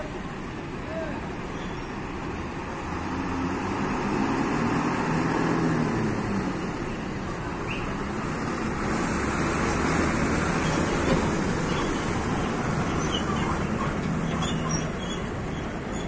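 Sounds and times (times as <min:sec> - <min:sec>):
bus diesel engine pulling away: 0:00.0 - 0:16.0.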